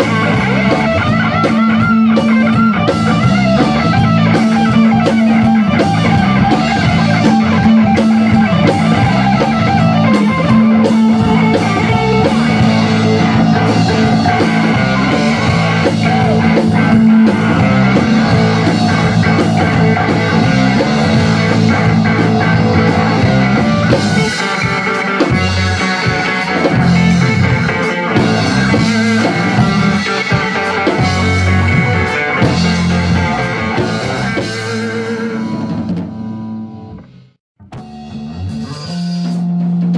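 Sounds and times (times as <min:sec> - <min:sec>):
drum strikes: 0:00.0 - 0:36.4
distorted electric guitars: 0:00.0 - 0:39.9.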